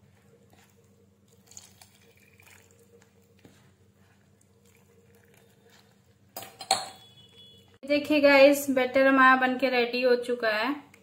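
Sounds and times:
spoon stirring wet batter: 0:00.0 - 0:07.8.

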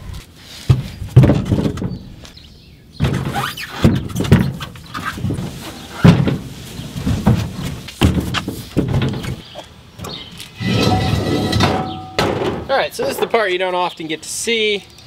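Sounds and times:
tyres thumping into truck bed: 0:00.7 - 0:02.2, 0:03.0 - 0:13.4
steel wheel rim clanking: 0:10.1 - 0:12.7.

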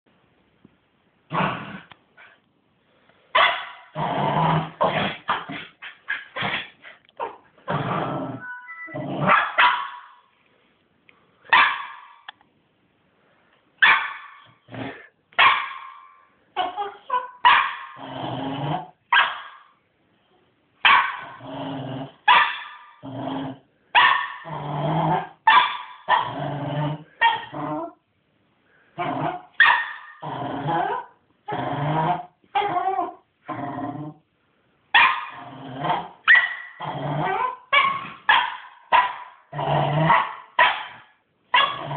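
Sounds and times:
puppy barking and growling: 0:03.4 - 0:10.2, 0:11.5 - 0:12.3, 0:13.8 - 0:19.7, 0:20.8 - 0:28.0, 0:29.0 - 0:34.2, 0:34.9 - 0:41.9.

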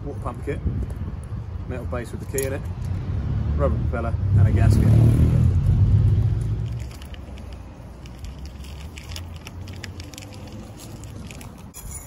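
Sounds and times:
gloved hands handling parts: 0:02.0 - 0:02.9, 0:06.4 - 0:12.0.

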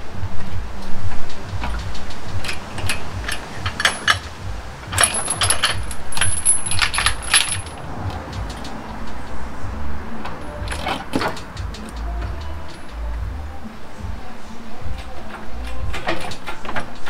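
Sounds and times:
metal tools clinking and rattling: 0:01.6 - 0:09.2, 0:10.3 - 0:13.0.

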